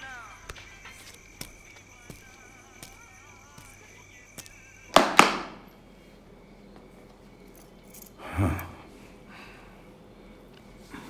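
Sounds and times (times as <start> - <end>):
sharp ringing clinks: 0.0 - 5.8, 7.4 - 8.8.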